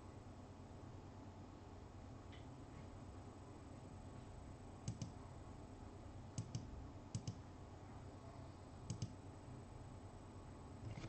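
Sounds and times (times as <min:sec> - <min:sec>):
computer mouse double clicks: 0:04.9 - 0:05.2, 0:06.4 - 0:07.4, 0:08.9 - 0:09.2.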